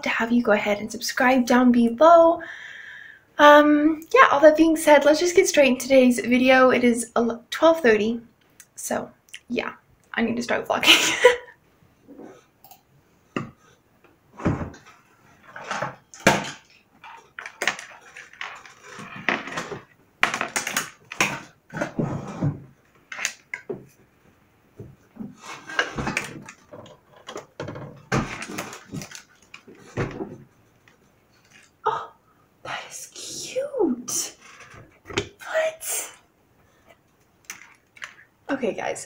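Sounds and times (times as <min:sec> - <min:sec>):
objects rummaged in wooden box: 0:25.4 - 0:30.2.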